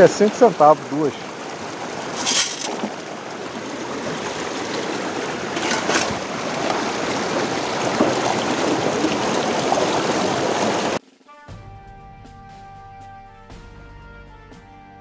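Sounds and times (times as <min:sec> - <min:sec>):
sharp water splash: 0:00.0 - 0:11.0
stream water rushing over rock: 0:00.0 - 0:11.0.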